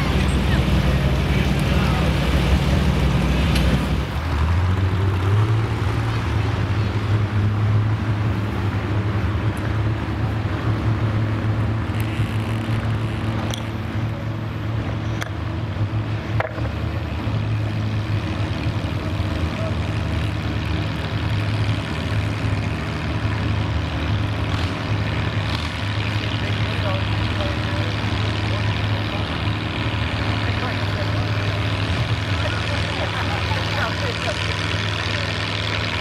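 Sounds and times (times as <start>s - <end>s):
tractor engine under load: 9.3s - 36.0s.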